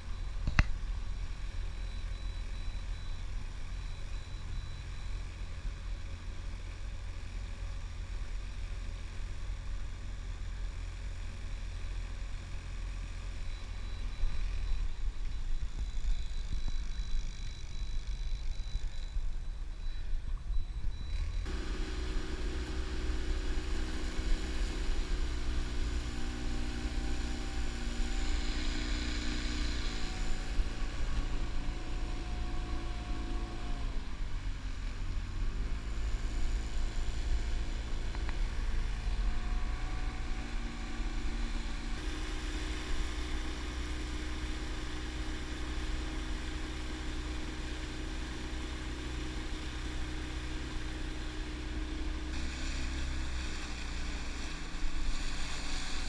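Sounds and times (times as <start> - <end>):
outboard motor running: 21.0 - 56.0.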